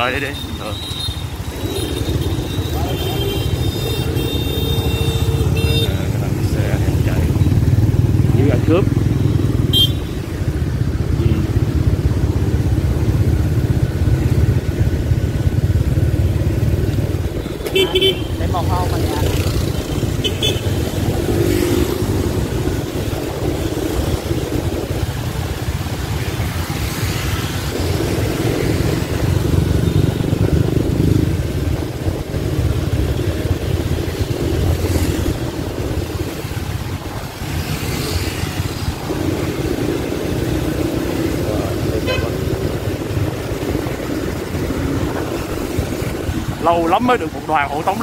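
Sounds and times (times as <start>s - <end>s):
traffic engines running: 0.0s - 48.0s
car horn toots: 9.7s - 10.1s, 42.0s - 42.4s.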